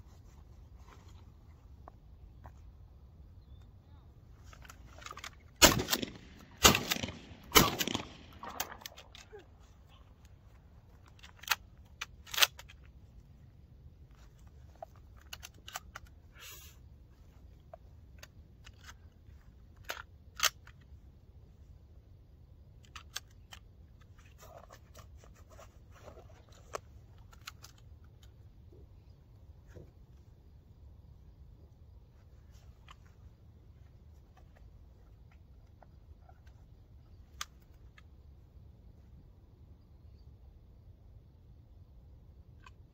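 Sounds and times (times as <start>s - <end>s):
light clicks and handling noise: 0.0s - 21.8s, 22.4s - 39.2s
low steady background rumble: 0.0s - 42.9s
shotgun action metallic clacks: 5.6s - 9.0s.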